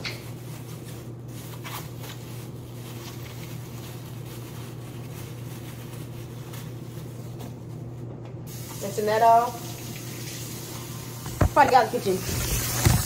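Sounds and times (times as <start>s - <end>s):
plastic bag crinkling: 0.0s - 8.1s.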